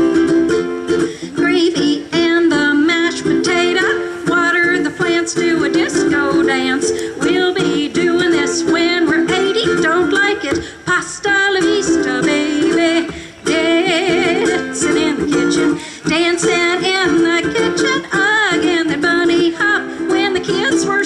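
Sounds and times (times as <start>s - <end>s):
ukulele strumming: 0.0s - 21.0s
woman singing: 0.0s - 21.0s.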